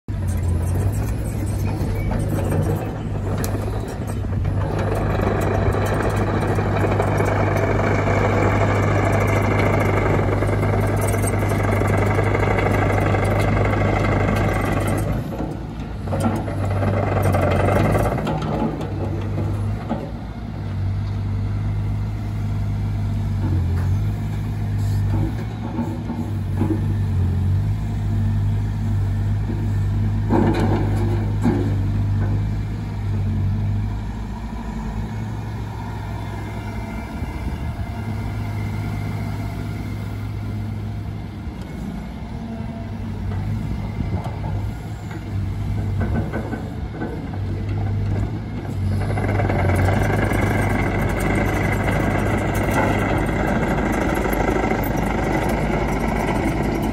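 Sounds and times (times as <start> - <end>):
excavator diesel engine running: 0.1 - 56.9
steel tracks rattling: 0.3 - 20.1, 41.7 - 56.9.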